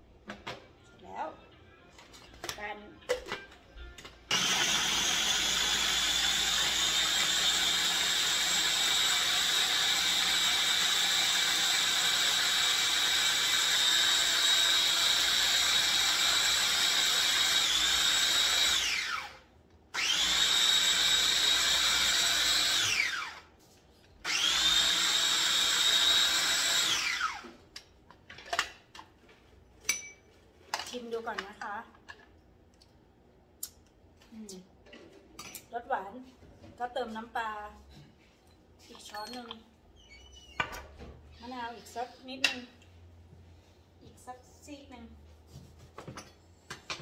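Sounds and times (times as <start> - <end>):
electric food chopper whine: 4.3 - 23.5, 24.3 - 27.6.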